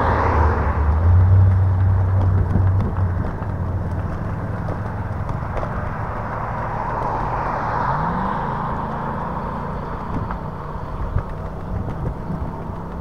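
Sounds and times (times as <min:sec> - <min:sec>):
wind on microphone: 0:00.0 - 0:04.3, 0:09.7 - 0:12.8
tyre rumble: 0:00.0 - 0:13.0
rattles and knocks: 0:01.4 - 0:07.2.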